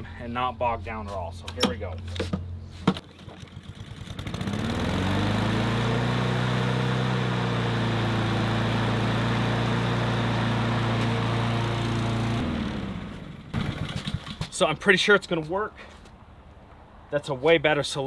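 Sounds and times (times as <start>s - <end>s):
lawn mower engine starting and running: 2.8s - 14.5s.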